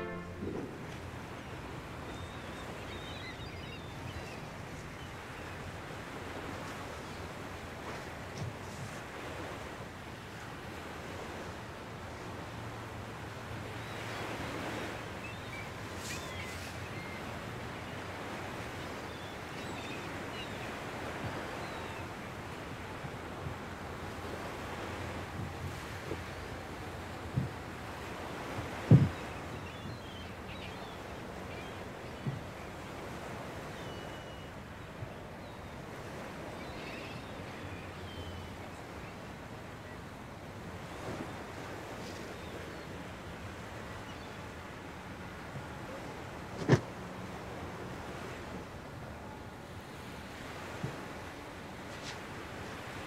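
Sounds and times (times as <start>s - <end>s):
waves against a seawall: 0.0s - 53.0s
wind: 0.0s - 53.0s
soft thump: 28.9s - 29.2s.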